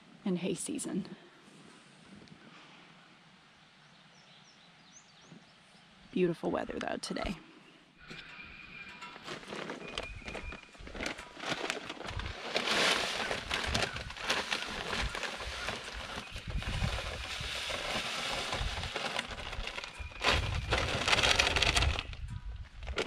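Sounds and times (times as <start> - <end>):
paper sack rustling: 9.0 - 23.0
feed pouring into wooden trough: 11.0 - 22.0.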